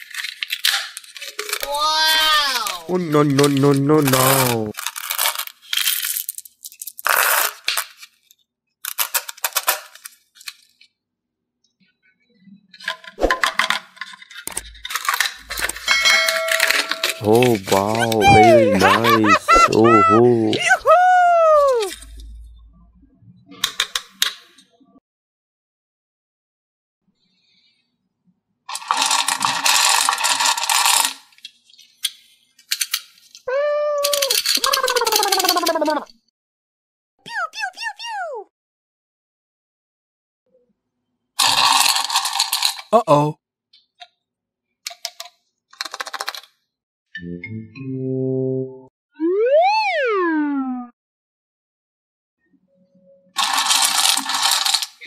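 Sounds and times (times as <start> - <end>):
candies clicking and rattling: 0.0 - 10.8, 13.2 - 20.7, 28.7 - 33.4, 34.0 - 36.1, 41.4 - 43.0, 44.9 - 46.5, 53.4 - 55.0
plastic cup handling: 14.5 - 20.6
scattered bead clicks: 53.4 - 55.0.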